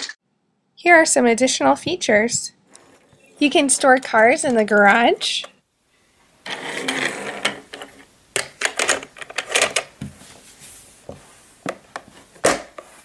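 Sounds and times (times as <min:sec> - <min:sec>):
toy car rolling on wood: 0:02.7 - 0:05.5, 0:06.4 - 0:09.8
plastic toy clicks and knocks: 0:07.4 - 0:09.9.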